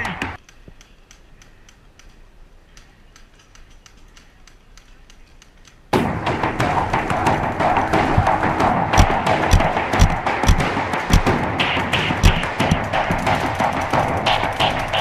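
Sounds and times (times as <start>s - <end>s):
distant paintball markers firing: 0.0s - 15.0s
loud background music: 6.0s - 15.0s.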